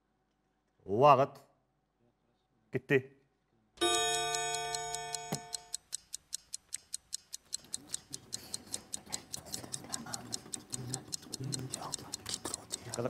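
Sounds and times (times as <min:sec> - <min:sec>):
chiming signal tone: 0:03.8 - 0:05.7
countdown clock ticking: 0:03.8 - 0:13.0.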